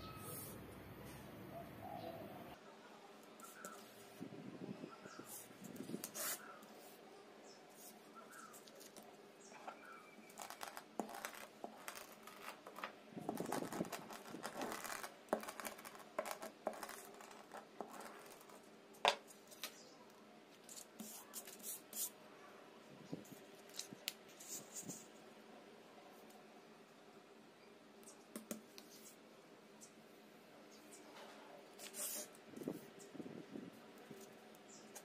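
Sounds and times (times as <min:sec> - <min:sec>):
paper rustling and crinkling: 0:09.7 - 0:18.6
tape pulled and torn: 0:10.3 - 0:18.6.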